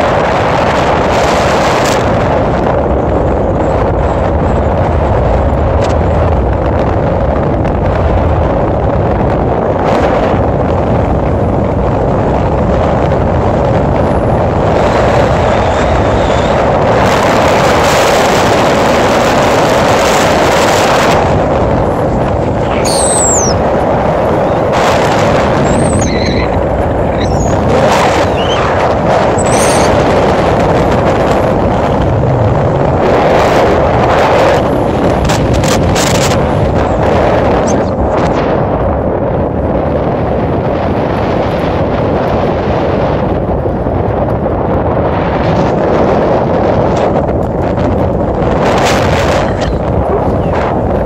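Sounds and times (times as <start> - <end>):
wind noise: 0.0 - 51.0
tyres rumbling on gravel: 23.5 - 39.8.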